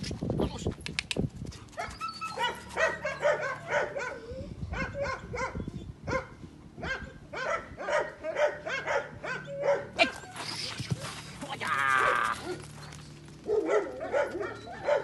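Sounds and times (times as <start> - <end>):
dog barking and yipping: 1.8 - 10.4, 12.1 - 15.0.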